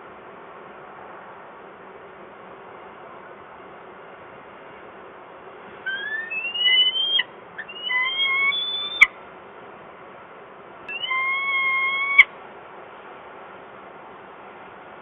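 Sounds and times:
falcon calling: 0:05.9 - 0:09.1, 0:10.9 - 0:12.3.

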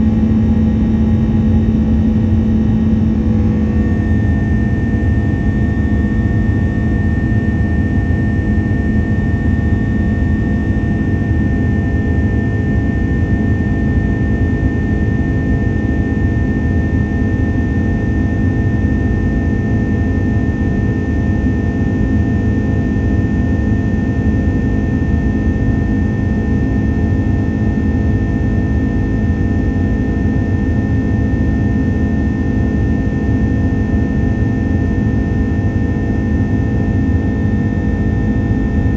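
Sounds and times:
high-pitched engine whine: 0:00.0 - 0:38.9
jet engine drone in cabin: 0:00.0 - 0:38.9.

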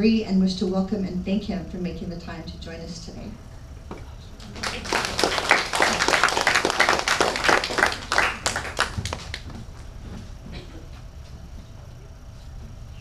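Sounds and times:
audience applause: 0:04.4 - 0:09.6.

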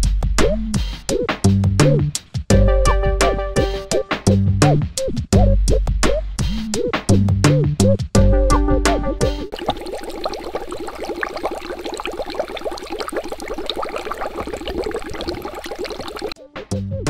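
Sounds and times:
water bubbling: 0:09.5 - 0:16.4.

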